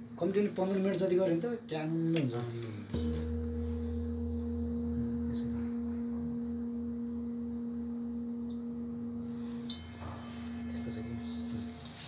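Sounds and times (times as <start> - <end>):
singing bowl ringing: 2.9 - 12.0.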